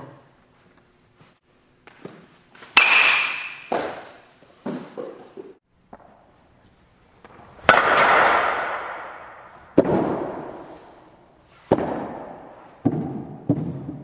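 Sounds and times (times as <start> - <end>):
baseball bat cracks with echo: 2.8 - 4.1, 7.6 - 10.6.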